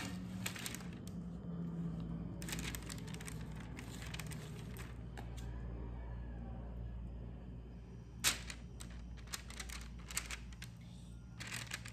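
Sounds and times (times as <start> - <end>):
baking parchment crinkling: 0.0 - 1.3, 2.2 - 5.4, 8.2 - 11.9
steady low hum: 0.0 - 11.9.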